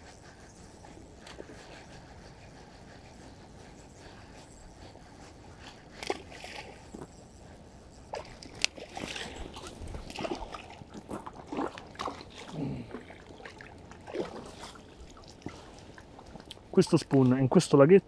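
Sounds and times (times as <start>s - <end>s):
fish thrashing and splashing: 8.1s - 16.5s.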